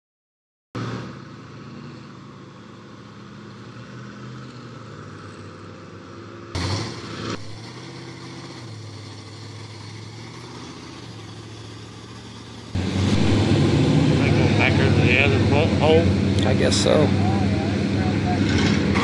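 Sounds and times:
truck engines running: 0:00.8 - 0:19.0
sudden loud rush: 0:12.8 - 0:17.1.

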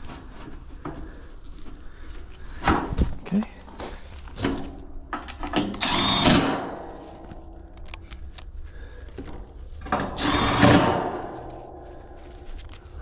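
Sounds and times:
power driver whirring: 0:05.6 - 0:06.5, 0:10.1 - 0:10.9.

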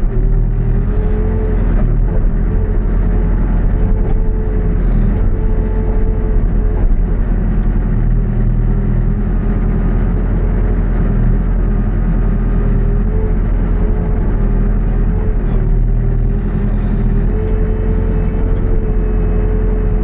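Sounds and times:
diesel engine running under load: 0:00.0 - 0:20.0
hydraulic whine: 0:15.2 - 0:20.0.

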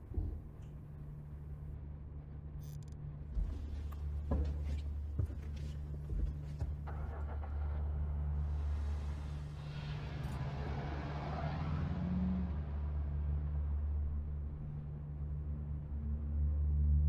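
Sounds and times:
low rumbling drone: 0:06.7 - 0:10.7.

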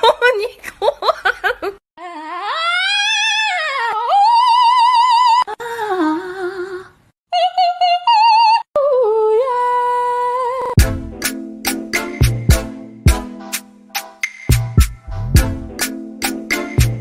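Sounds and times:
opera-style singing voice: 0:04.1 - 0:10.8.

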